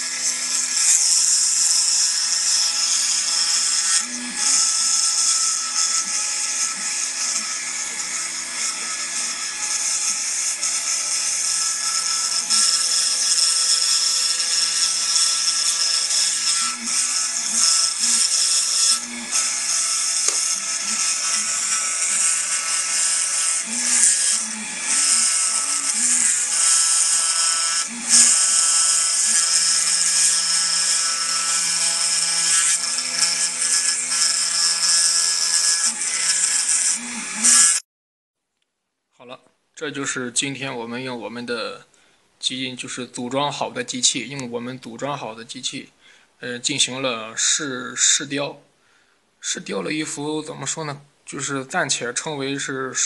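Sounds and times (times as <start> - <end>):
router spindle whining: 0.0 - 37.8.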